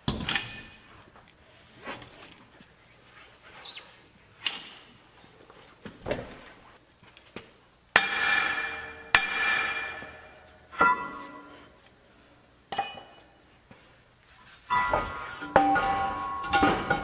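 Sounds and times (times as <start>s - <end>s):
hammer striking metal brake drum: 8.0s - 11.5s, 14.7s - 17.0s.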